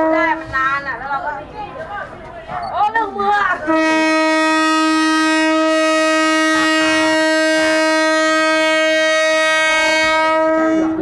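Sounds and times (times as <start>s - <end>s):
train horn blast: 0.0s - 0.6s, 3.6s - 11.0s.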